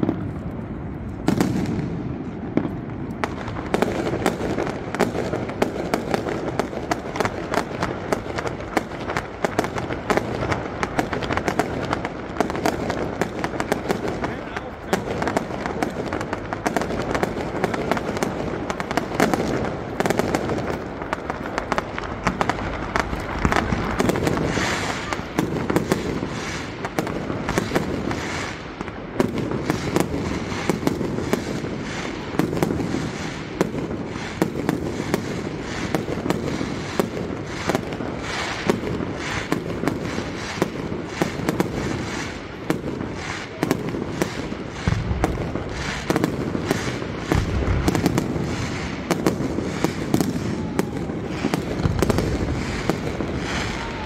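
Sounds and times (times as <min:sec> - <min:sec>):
fireworks bursting: 0:00.0 - 0:54.0.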